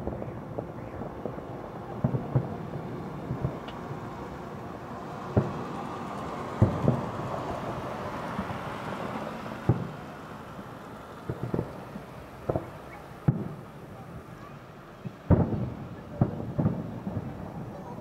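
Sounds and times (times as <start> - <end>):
firework shells booming: 0.0 - 8.7, 9.6 - 10.1, 11.2 - 18.0.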